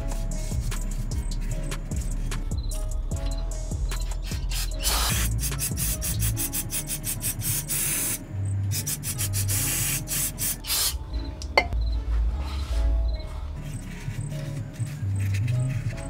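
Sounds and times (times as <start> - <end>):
background music with bass line: 0.0 - 16.0.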